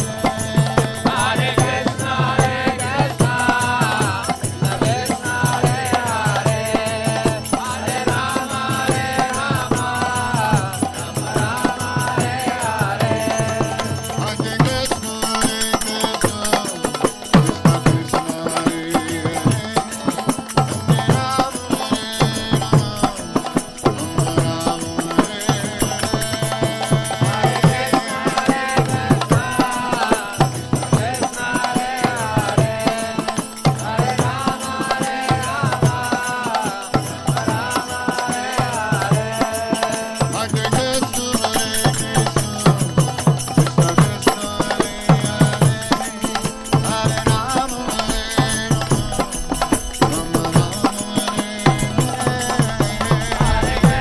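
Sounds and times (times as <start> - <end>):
voices chanting a melody: 0.0 - 20.1, 21.0 - 40.5, 43.9 - 54.0
hand drum strokes: 40.0 - 54.0.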